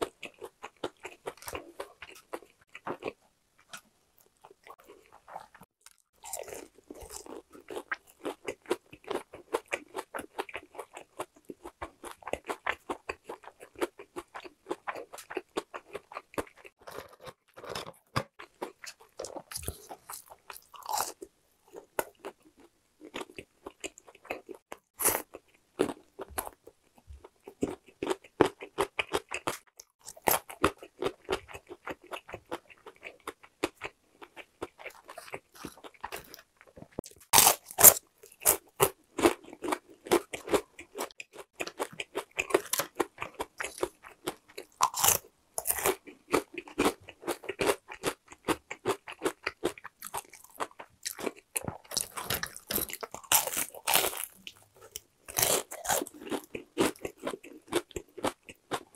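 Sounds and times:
crunching fried chicken: 0.0s - 58.9s.

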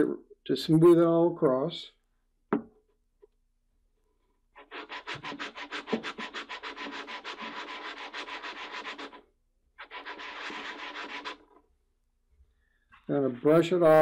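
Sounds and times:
plastic bar rubbed on sandpaper: 4.6s - 11.6s.

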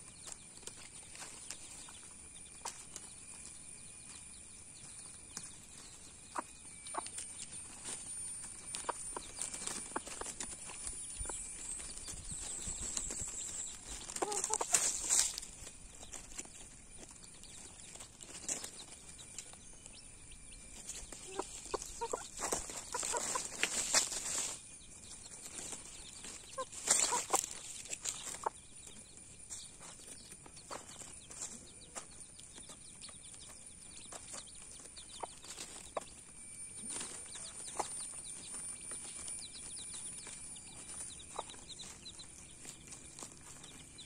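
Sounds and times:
dry leaves rustling: 0.2s - 4.2s, 4.8s - 44.0s
chicken clucks: 4.8s - 20.0s, 20.7s - 32.8s, 33.4s - 36.2s, 36.8s - 44.0s
rooster scratching in dry leaves: 7.6s - 19.1s, 20.8s - 28.5s.

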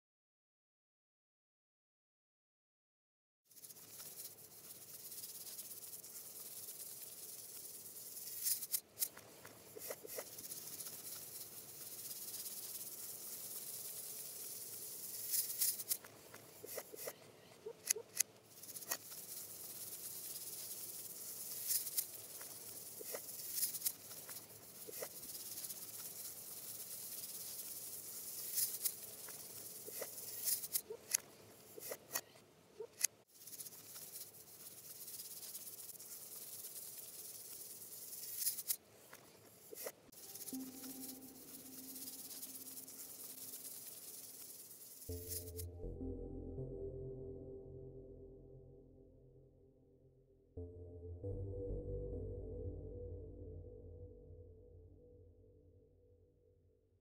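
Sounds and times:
steady high hiss: 3.5s - 17.6s, 18.2s - 32.3s, 33.3s - 45.7s.

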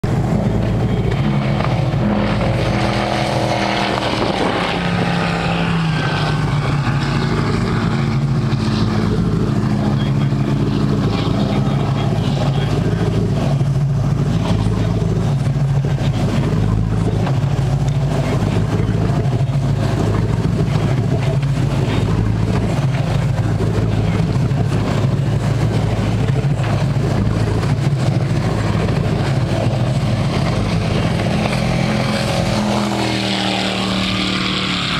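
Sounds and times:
motorboat engine droning: 0.0s - 34.9s.

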